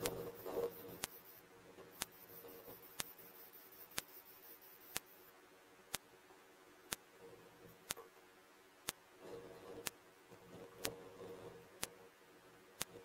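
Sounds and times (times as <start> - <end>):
faint sharp ticks: 0.9 - 1.2, 2.0 - 4.2, 4.9 - 5.2.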